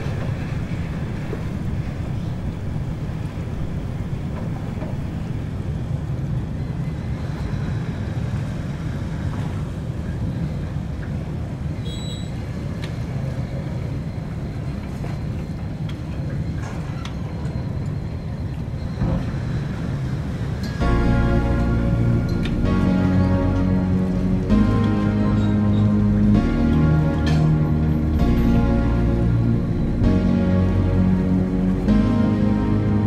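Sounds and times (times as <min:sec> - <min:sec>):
ship engine rumble: 0:00.0 - 0:11.6, 0:12.4 - 0:33.0
bow wave: 0:20.8 - 0:33.0.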